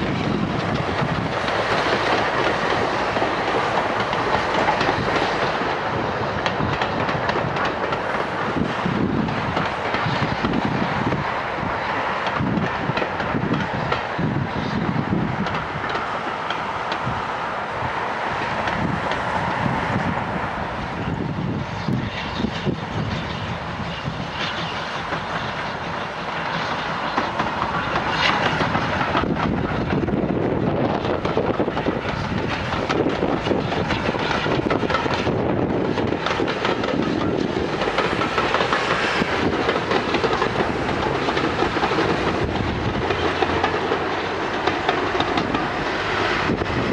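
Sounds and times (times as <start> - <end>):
train wheels clattering over joints: 0.0 - 20.1, 21.0 - 46.9
steam locomotive working: 0.0 - 46.9.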